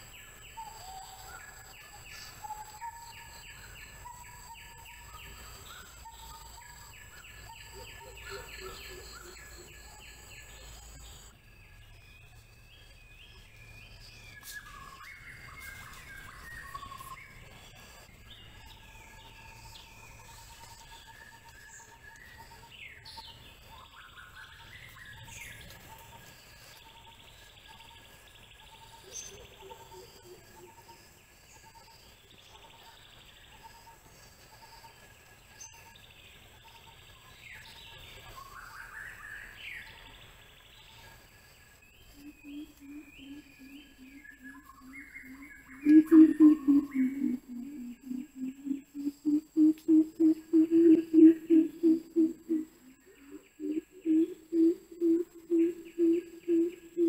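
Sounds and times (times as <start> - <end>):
birds chirping and singing: 0.0 - 57.0.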